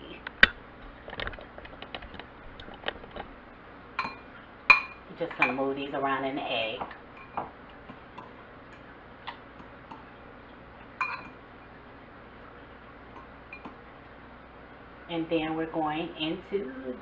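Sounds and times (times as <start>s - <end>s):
fork clinking against glass bowl: 4.0s - 5.6s, 7.1s - 7.4s, 11.0s - 11.4s, 13.1s - 13.8s.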